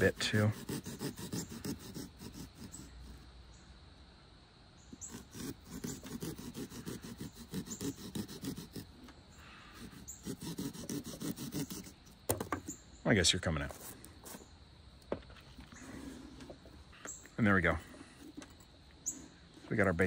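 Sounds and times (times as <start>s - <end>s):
saw cutting through pumpkin: 0.0s - 3.3s, 4.9s - 12.5s.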